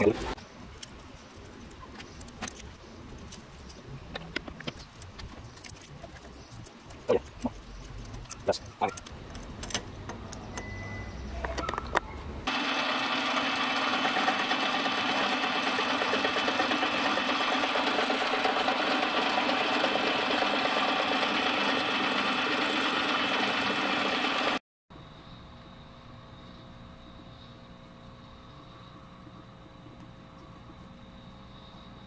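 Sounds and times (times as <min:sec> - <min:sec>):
hand tap clicking and squeaking: 0:11.4 - 0:12.2
metal lathe running: 0:12.5 - 0:24.6.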